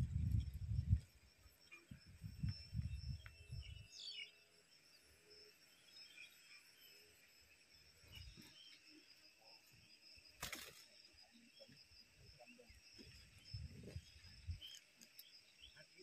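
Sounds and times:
faint insect drone: 0.0s - 16.0s
bird landing rustle: 10.4s - 10.9s
nestlings begging chirps: 10.8s - 16.0s.

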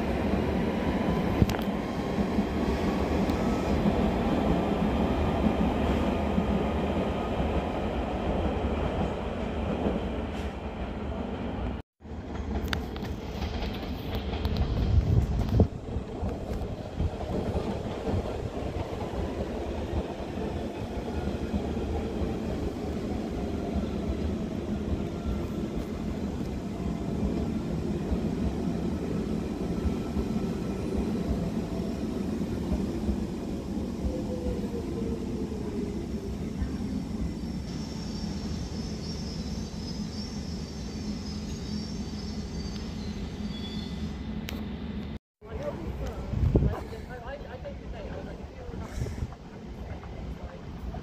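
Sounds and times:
train rumbling: 0.0s - 51.0s
faint high squeal: 37.3s - 44.2s.

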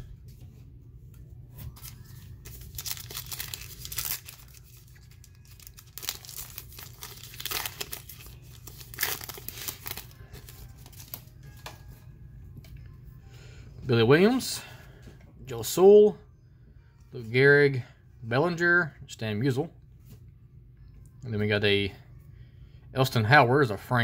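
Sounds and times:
foil wrapper tearing and crinkling: 1.8s - 11.2s.

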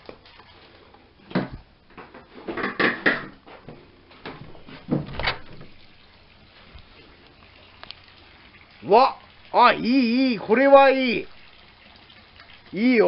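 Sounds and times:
door opening and shutting: 4.3s - 5.9s.

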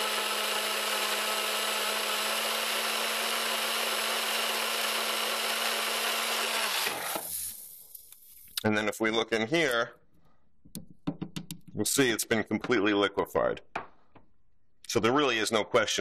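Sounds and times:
blender motor running: 0.0s - 7.6s.

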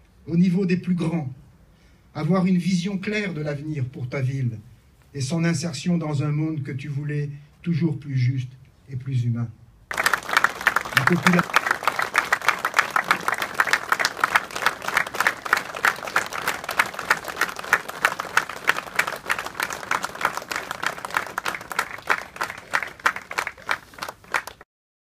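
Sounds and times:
crowd applauding: 9.9s - 24.6s.

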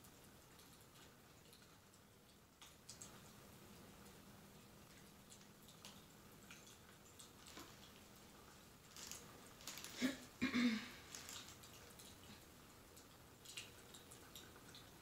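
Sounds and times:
fireplace crackling and popping: 0.0s - 15.0s
rustle of movement near microphone: 7.2s - 12.5s.

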